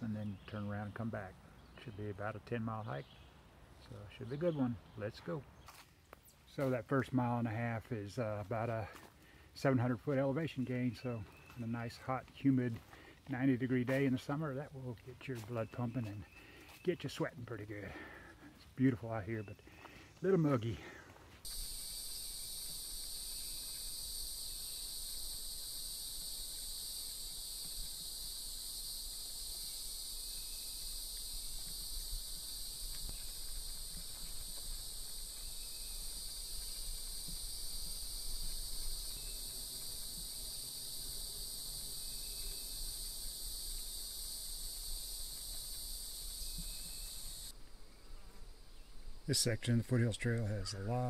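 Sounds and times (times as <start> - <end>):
shrill insect chorus: 21.4 - 51.0.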